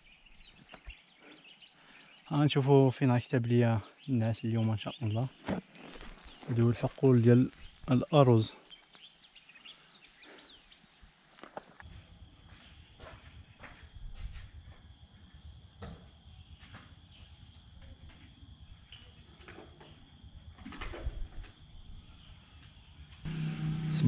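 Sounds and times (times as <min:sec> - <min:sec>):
crickets trilling: 0:00.0 - 0:24.0
low rumble: 0:23.2 - 0:24.0.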